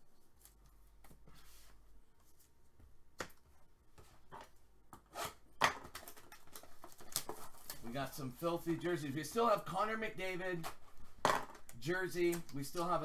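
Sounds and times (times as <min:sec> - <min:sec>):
cards tapping and rustling: 0:05.6 - 0:07.9.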